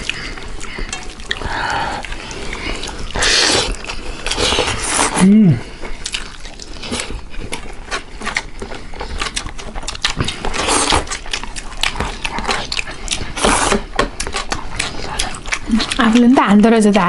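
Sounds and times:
chewing and lip smacks: 0.0s - 5.1s, 5.7s - 17.0s.

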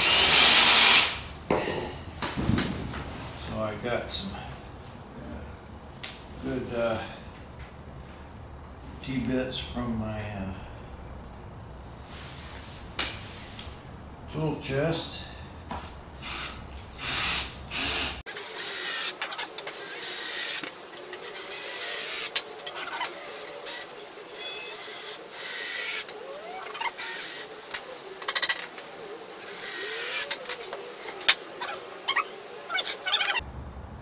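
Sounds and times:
cordless drill driving screws: 0.0s - 1.2s, 16.2s - 23.9s.

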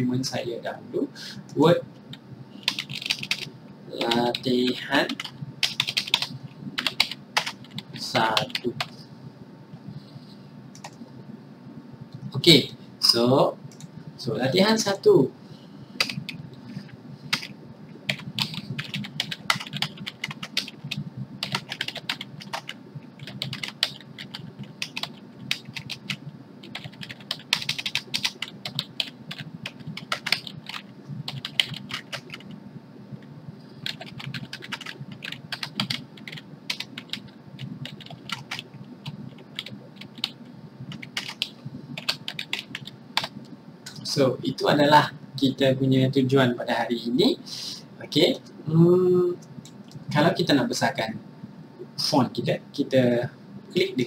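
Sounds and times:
typing on computer keyboard: 2.6s - 8.9s, 16.0s - 16.4s, 18.1s - 32.5s, 33.8s - 43.3s.

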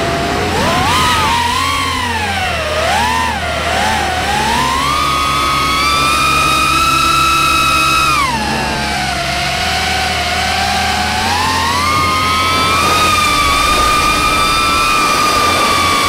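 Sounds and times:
quadcopter propellers whining: 0.0s - 16.0s
wind buffeting microphone: 11.0s - 16.0s.

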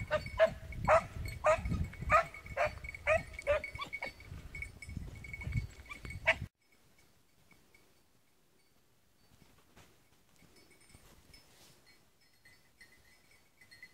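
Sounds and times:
hounds baying and barking: 0.0s - 4.3s, 5.7s - 6.5s.

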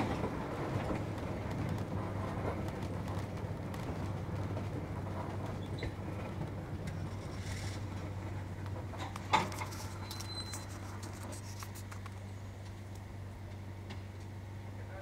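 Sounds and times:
railcar rolling hum: 0.0s - 15.0s
light clicks and creaks: 2.6s - 14.3s.

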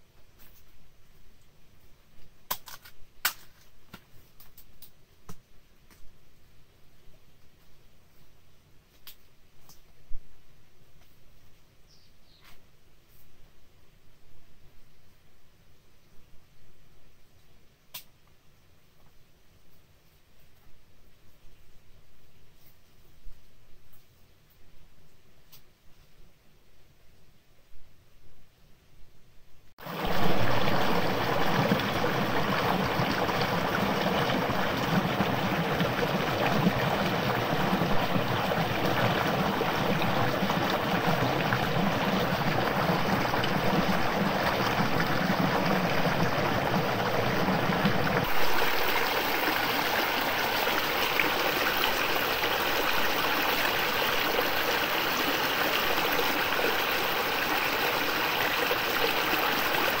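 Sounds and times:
stream water flowing: 29.8s - 60.0s.

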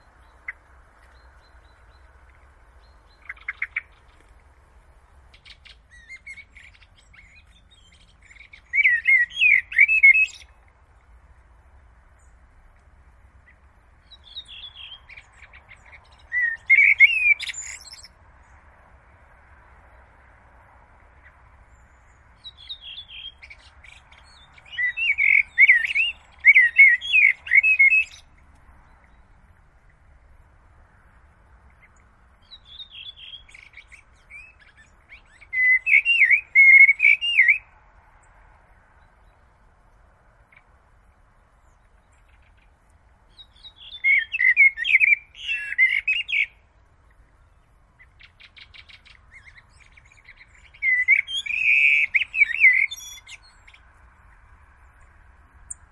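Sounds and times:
blackbird singing: 0.0s - 4.3s, 5.3s - 10.6s, 13.4s - 18.2s, 21.2s - 29.6s, 31.7s - 37.7s, 41.6s - 53.9s.

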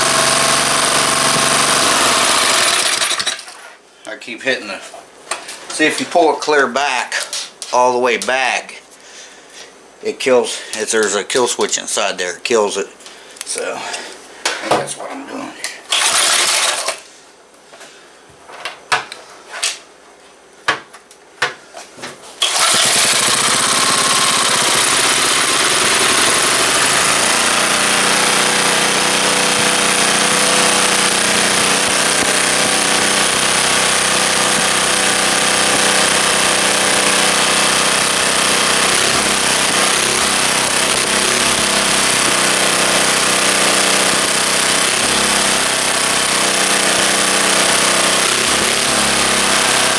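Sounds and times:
small engine running: 0.0s - 3.5s, 15.9s - 17.0s, 22.4s - 49.9s.

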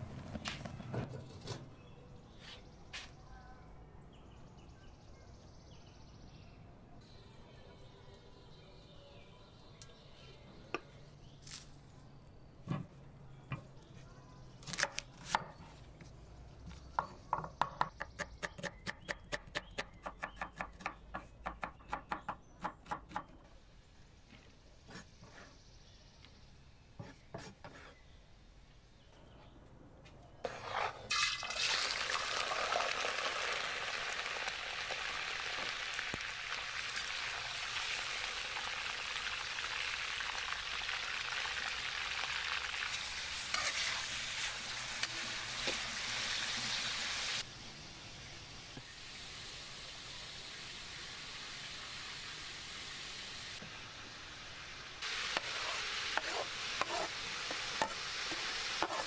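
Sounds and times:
metal ladle scraping pot: 30.5s - 31.4s
meat sizzling in hot oil: 31.1s - 47.4s, 54.3s - 59.0s.

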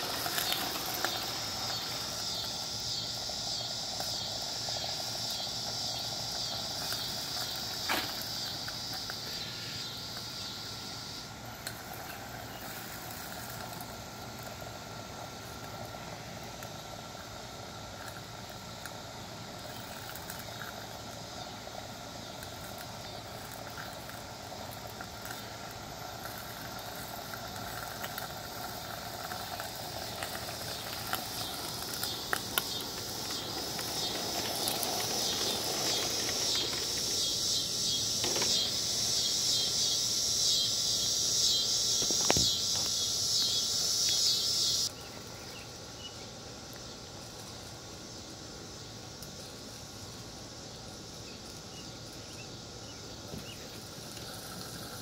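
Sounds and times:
steam locomotive chuffing: 31.6s - 40.2s.

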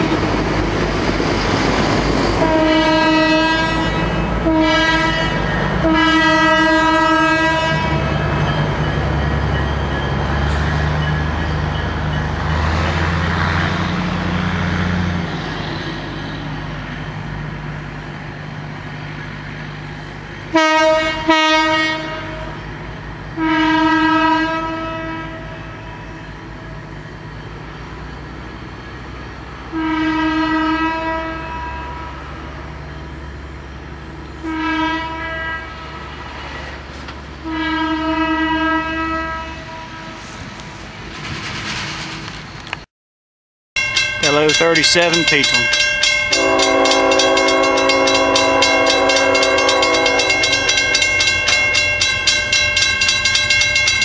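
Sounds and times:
low rumble of passing train: 0.0s - 42.9s, 43.8s - 54.0s
locomotive air horn blasts: 2.4s - 8.2s, 20.5s - 22.6s, 23.4s - 26.2s, 29.7s - 32.2s, 34.4s - 36.2s, 37.4s - 40.3s, 46.2s - 53.1s.

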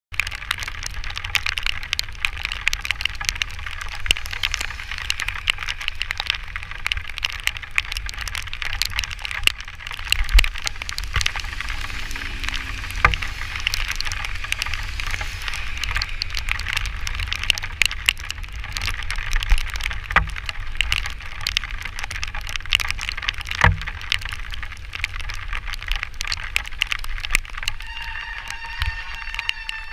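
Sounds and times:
low wind rumble: 0.1s - 29.9s
rain pattering on camera: 0.1s - 29.9s
tires hissing on wet pavement: 0.2s - 29.9s
high squeal: 3.0s - 8.3s, 9.8s - 18.1s, 27.7s - 29.9s.

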